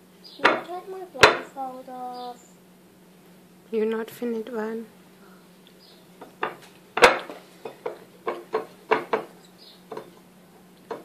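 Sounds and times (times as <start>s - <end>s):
ceramic plate knocking on wood: 6.4s - 9.3s.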